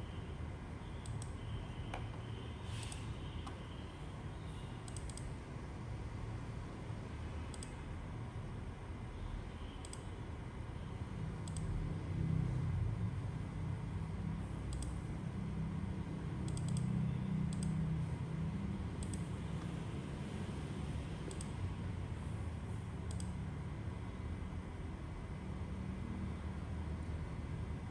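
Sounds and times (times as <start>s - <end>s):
computer mouse clicks: 1.0s - 2.2s, 2.8s - 3.6s, 4.8s - 5.4s, 7.5s - 7.8s, 9.8s - 10.1s, 11.4s - 11.8s, 14.7s - 15.0s, 16.4s - 17.8s, 19.0s - 19.8s, 21.3s - 21.7s, 23.1s - 23.4s.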